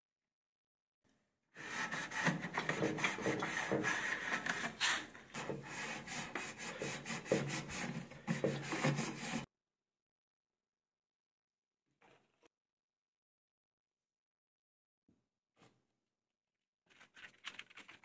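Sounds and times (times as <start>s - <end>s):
gloved hand scrubbing plastic: 1.6s - 9.5s.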